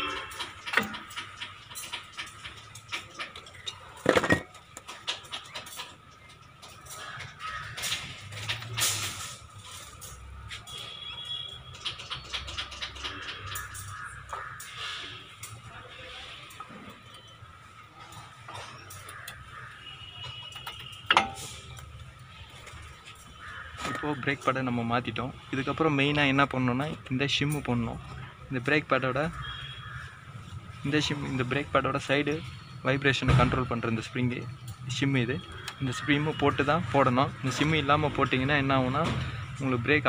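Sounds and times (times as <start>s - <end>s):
metallic clicks and knocks: 0.0s - 10.8s, 11.7s - 14.5s, 20.2s - 21.9s
brake parts clattering: 0.0s - 14.8s, 16.5s - 25.2s.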